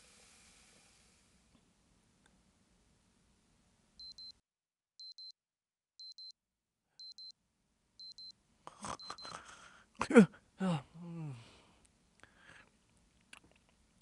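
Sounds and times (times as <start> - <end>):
electronic alarm beeping: 4.0 - 4.3, 5.0 - 5.3, 6.0 - 6.3, 7.0 - 7.3, 8.0 - 8.3, 9.0 - 9.4.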